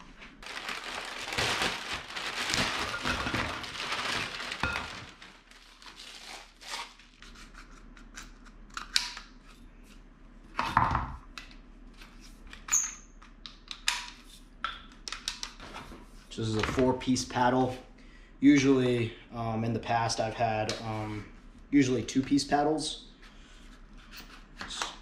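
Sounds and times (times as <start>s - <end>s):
plastic packaging crinkling: 0.3s - 7.2s.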